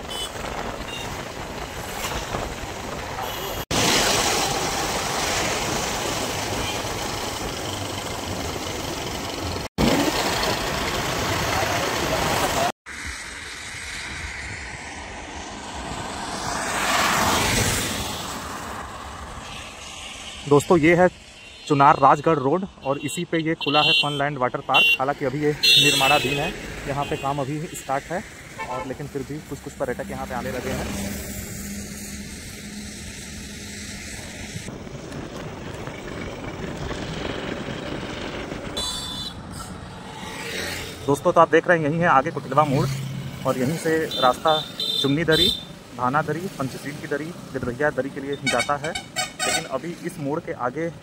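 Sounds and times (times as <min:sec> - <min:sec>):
road vehicle passing by: 0:13.6 - 0:20.8, 0:25.2 - 0:41.6, 0:42.2 - 0:44.8.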